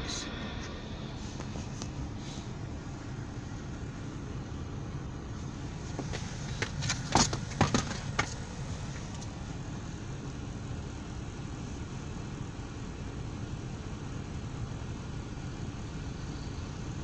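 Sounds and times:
parking brake clicks and clunks: 0.0s - 10.3s
engine idling: 0.0s - 17.0s.

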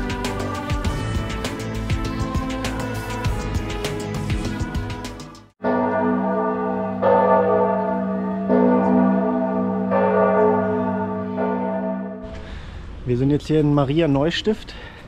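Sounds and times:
church bell ringing: 5.6s - 12.3s.

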